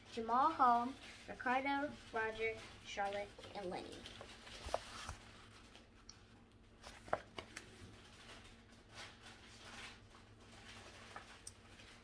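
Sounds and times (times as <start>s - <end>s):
book pages rustling: 2.5s - 12.0s.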